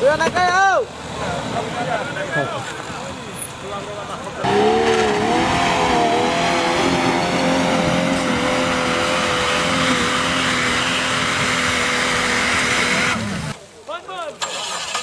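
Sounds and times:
car engine at high revs: 4.4 - 13.6.

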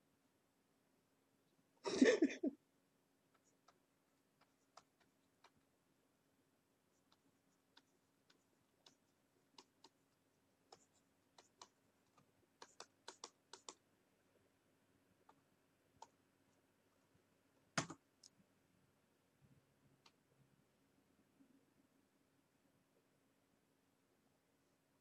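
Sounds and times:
mouse and keyboard clicks: 4.4 - 5.6, 7.0 - 10.0, 10.7 - 13.8.

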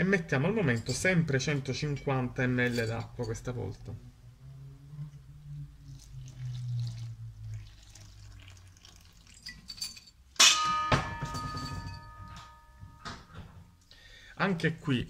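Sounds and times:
water pouring onto flour: 5.9 - 9.5
metallic strike ringing on bowl: 10.4 - 13.1.

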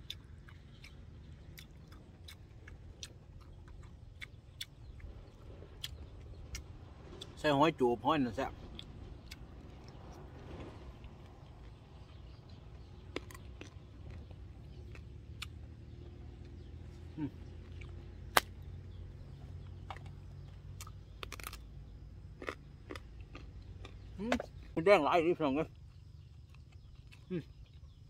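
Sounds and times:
person chewing food: 0.0 - 7.3, 8.7 - 24.7, 25.7 - 28.0
low steady rumble: 0.0 - 28.0
sharp crack: 18.2 - 18.7, 20.8 - 21.7.

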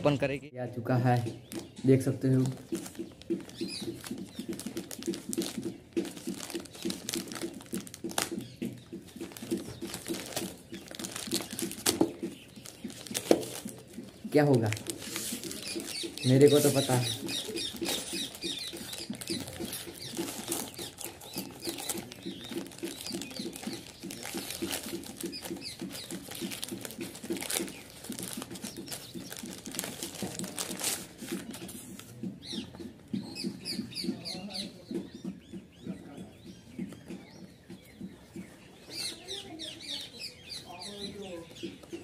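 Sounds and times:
small birds chirping: 0.0 - 42.0
plastic bag tearing and crinkling: 2.4 - 8.4, 9.3 - 13.8, 14.4 - 31.5.

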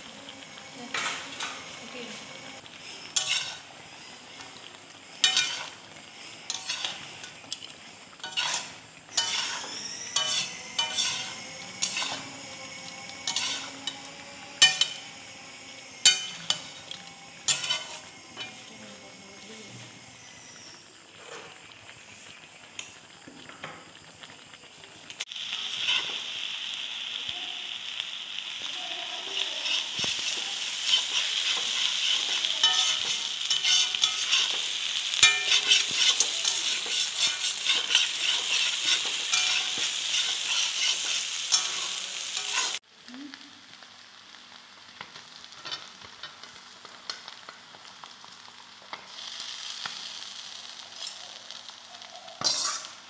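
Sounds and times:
curry sizzling in a wok: 0.0 - 53.0
spatula scraping a pan: 0.9 - 4.3, 5.1 - 7.6, 8.2 - 15.1, 16.0 - 18.8, 29.3 - 42.8, 52.4 - 53.0.

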